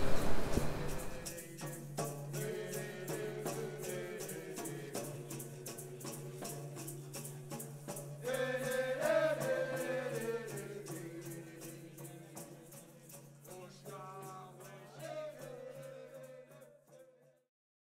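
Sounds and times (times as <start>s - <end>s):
low drone: 0.0s - 1.3s
shaker beat: 0.0s - 17.2s.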